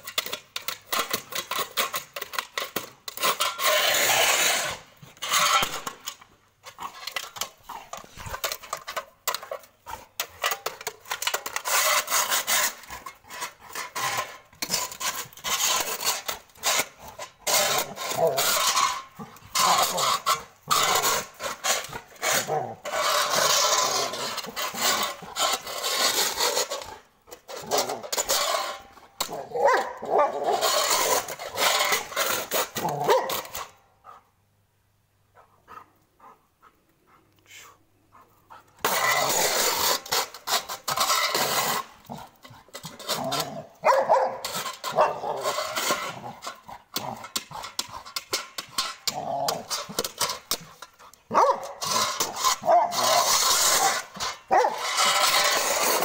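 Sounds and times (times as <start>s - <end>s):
metal plate scraping on concrete: 0.0s - 33.8s, 38.5s - 56.0s
dog barking: 43.8s - 44.4s, 51.3s - 51.7s.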